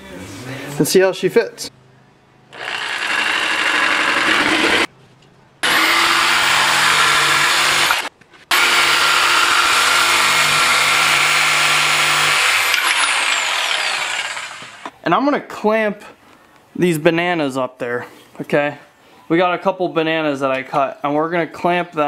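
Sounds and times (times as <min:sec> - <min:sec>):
jigsaw cutting plywood: 0:02.5 - 0:04.9, 0:05.6 - 0:14.9.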